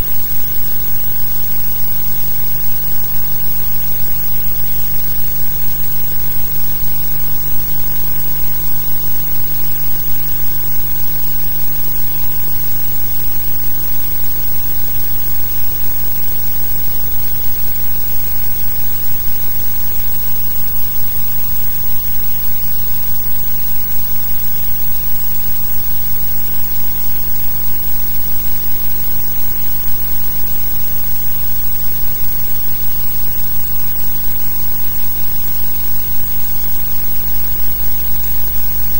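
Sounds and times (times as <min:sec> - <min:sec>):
low mains hum: 0:00.0 - 0:38.9.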